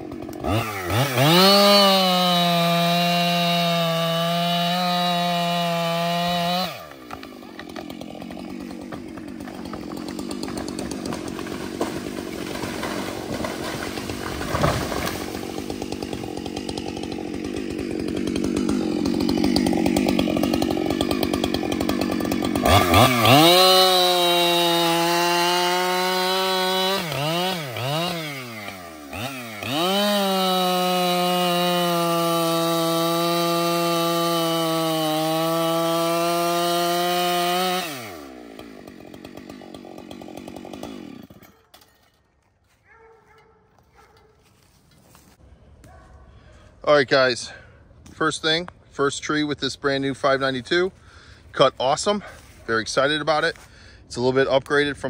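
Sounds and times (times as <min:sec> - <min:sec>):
chainsaw engine revving: 0:00.0 - 0:41.8
chainsaw cutting into log: 0:00.0 - 0:42.7.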